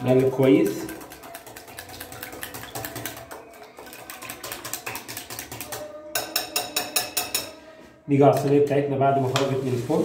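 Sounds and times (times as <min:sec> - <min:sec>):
whisk clicking against glass bowl: 0:00.0 - 0:07.5.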